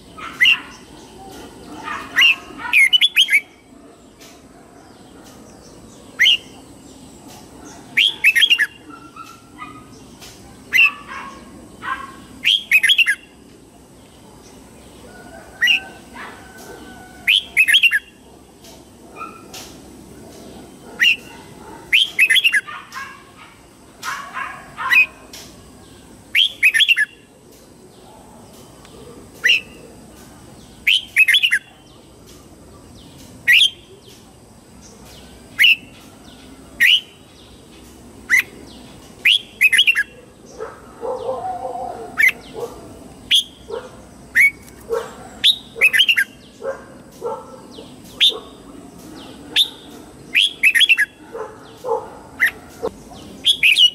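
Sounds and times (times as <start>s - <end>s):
bird singing whistled phrases: 6.2s - 6.5s, 49.6s - 51.2s.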